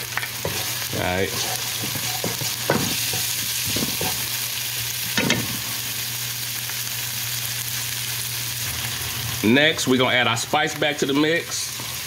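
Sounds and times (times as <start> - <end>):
onions sizzling in a frying pan: 0.0 - 12.0
wooden spatula scraping a pan: 0.4 - 4.3.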